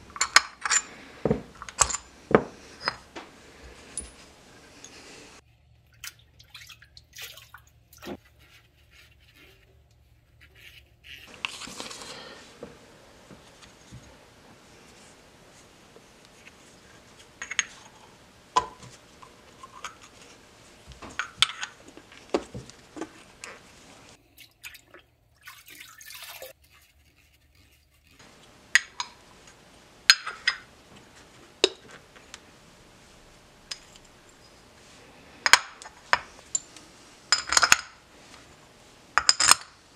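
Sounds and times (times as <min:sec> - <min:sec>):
metal parts clinking on a workbench: 0:00.2 - 0:00.9, 0:01.6 - 0:02.1.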